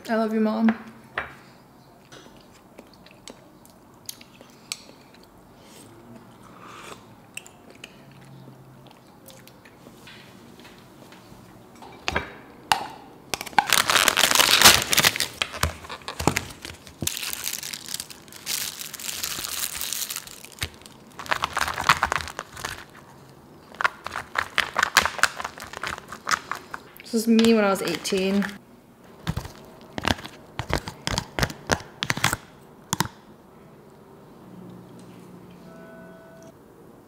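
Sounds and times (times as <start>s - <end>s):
plastic packaging crinkling: 13.4s - 28.6s, 29.2s - 32.4s.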